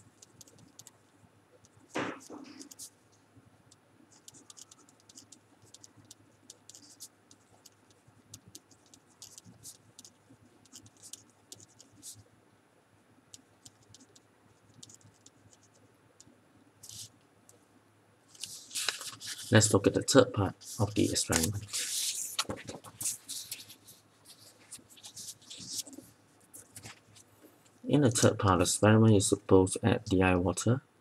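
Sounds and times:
pen scratching on paper: 4.2 - 12.2.

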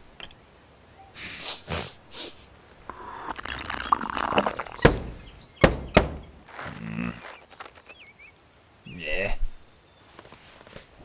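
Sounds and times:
slurping sips of tea: 2.9 - 4.8.

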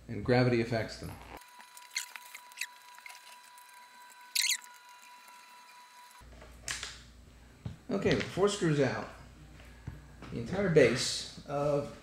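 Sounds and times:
screwdriver squeaks and clicks: 1.8 - 3.4, 4.3 - 4.7.

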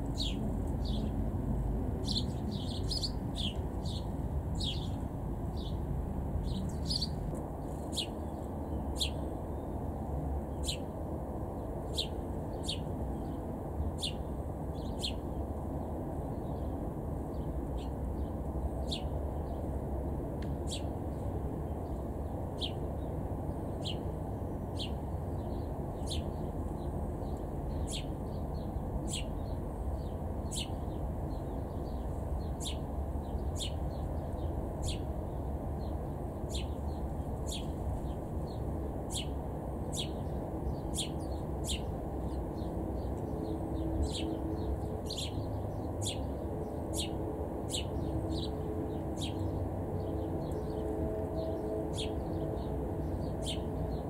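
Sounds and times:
bird chirping: 0.0 - 1.2, 2.0 - 5.8, 6.4 - 9.2, 11.9 - 13.4, 14.0 - 15.2, 17.3 - 19.5, 20.7 - 20.9, 23.8 - 26.5, 27.2 - 54.0
low background rumble: 0.0 - 54.0.

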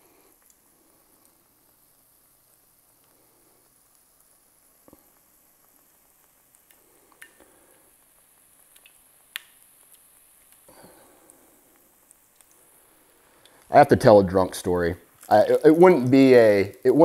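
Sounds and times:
fish frying in hot oil: 0.0 - 17.0
wet squishes of batter: 4.8 - 13.8.

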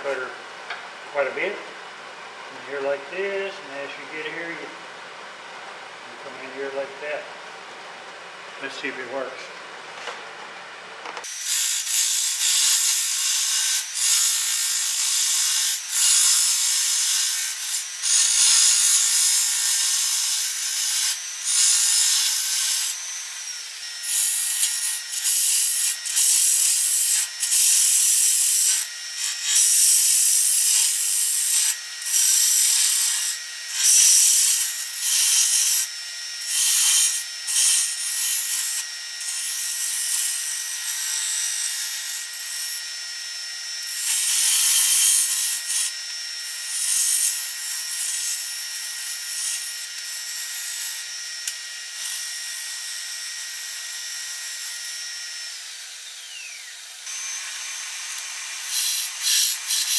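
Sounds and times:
wood lathe whine: 11.2 - 59.9
cutter scraping spinning wood: 54.3 - 59.9.

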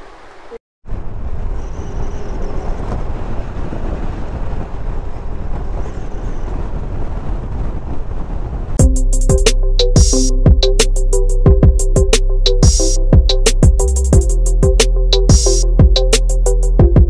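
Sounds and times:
wind rushing over microphone: 0.9 - 8.8.

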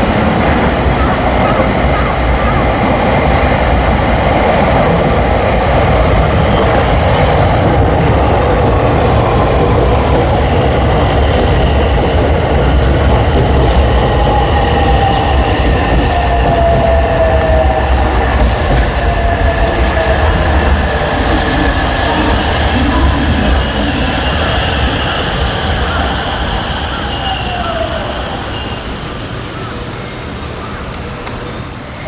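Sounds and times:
electric train braking to a stop: 10.2 - 32.0.

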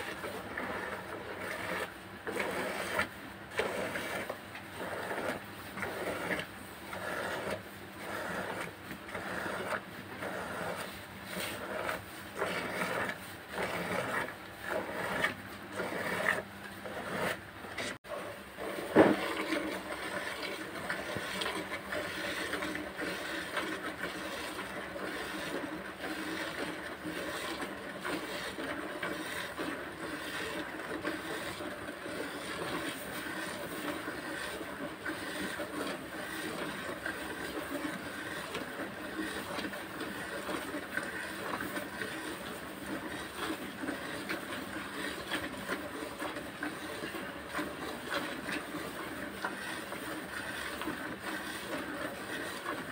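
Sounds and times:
milk squirting into bucket: 18.6 - 52.9.

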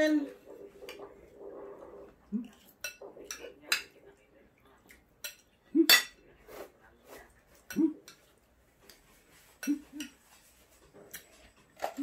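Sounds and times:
cutlery clinking on plates: 5.2 - 6.2.

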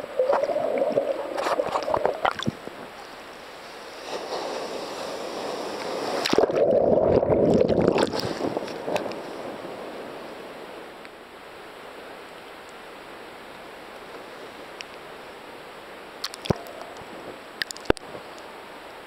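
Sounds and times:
ocean water rushing: 0.0 - 12.3.

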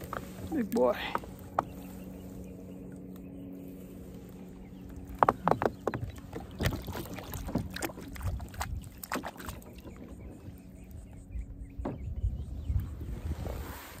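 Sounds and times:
water splashing against kayak: 5.0 - 10.6.

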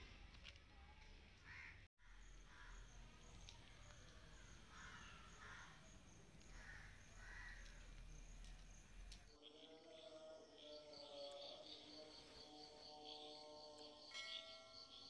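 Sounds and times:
crow cawing: 1.4 - 8.3
high insect trill: 2.0 - 15.0.

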